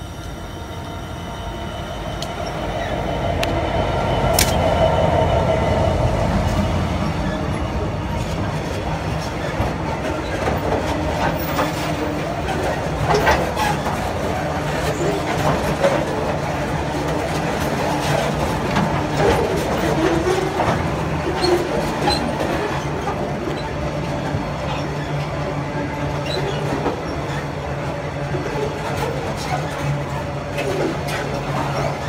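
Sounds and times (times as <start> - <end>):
train wheels clattering over rail joints: 8.1 - 32.0.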